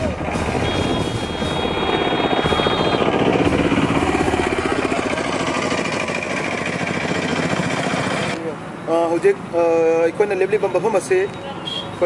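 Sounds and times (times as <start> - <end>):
small engine chugging: 0.2 - 8.4
thin high tone: 0.5 - 5.2.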